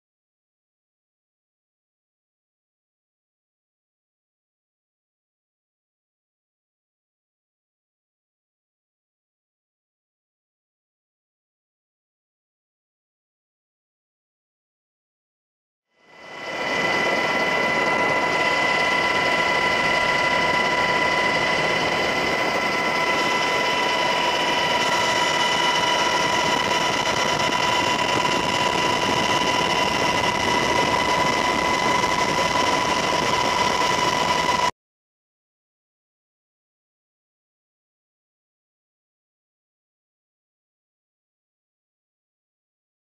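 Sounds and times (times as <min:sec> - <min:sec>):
aircraft engine drone in cabin: 0:16.0 - 0:34.7.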